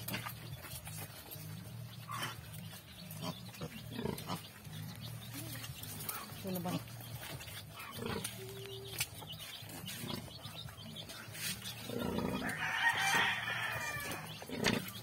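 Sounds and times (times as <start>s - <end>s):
sow grunting: 7.7s - 8.8s.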